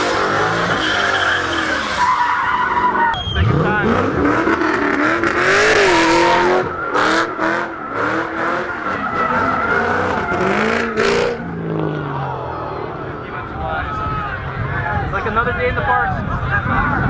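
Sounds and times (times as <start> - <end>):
tyres skidding and squealing: 0.0 - 15.1
car engine revving: 3.2 - 13.1.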